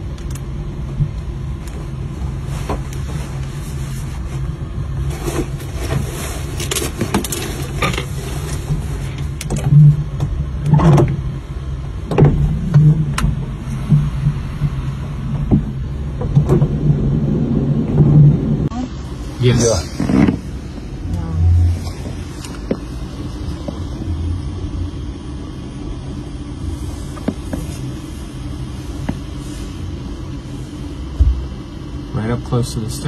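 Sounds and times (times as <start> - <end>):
low machinery hum: 0.0 - 33.0
knocks and scrapes: 19.6 - 20.8.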